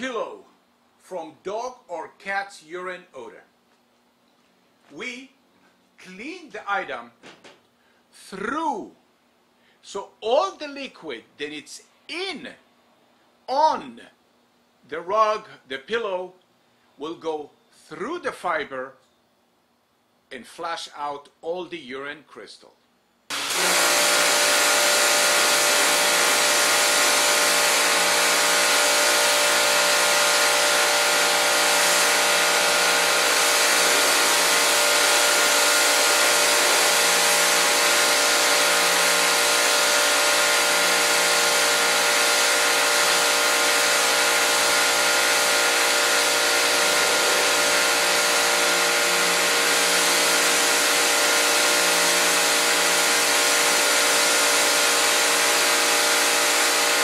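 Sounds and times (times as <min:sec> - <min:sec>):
pump motor humming: 0:23.3 - 0:57.0.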